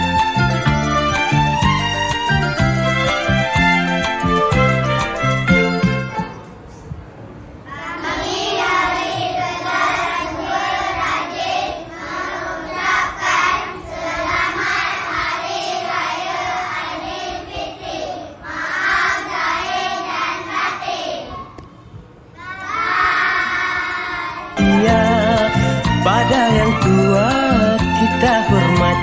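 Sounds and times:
children singing in unison: 0:07.7 - 0:21.5, 0:22.4 - 0:25.3.

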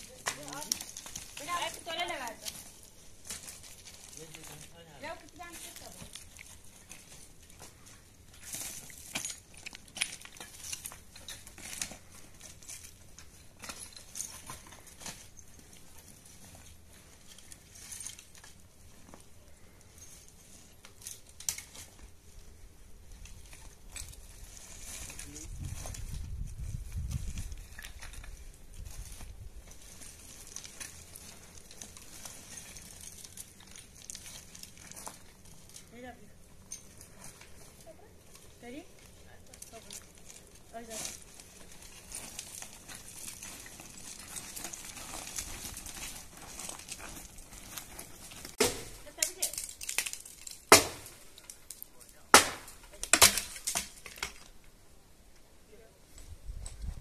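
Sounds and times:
brushwood and stones crackling: 0:00.0 - 0:57.0
wind rumble on microphone: 0:25.2 - 0:29.8, 0:56.2 - 0:57.0.

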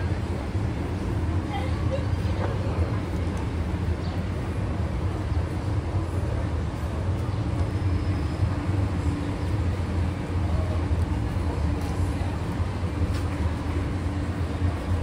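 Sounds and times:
low steady drone: 0:00.0 - 0:15.0.

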